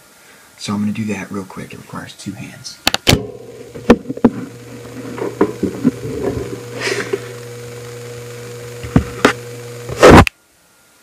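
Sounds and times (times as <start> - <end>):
steady low hum: 2.1 - 10.3
phone and cable handling clicks: 2.9 - 7.4.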